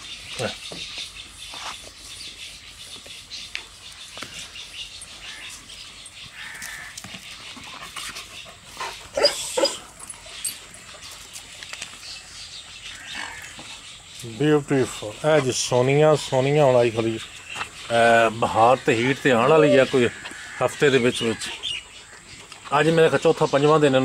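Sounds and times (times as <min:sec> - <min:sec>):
dog panting: 0:07.3 - 0:11.6, 0:18.6 - 0:23.3.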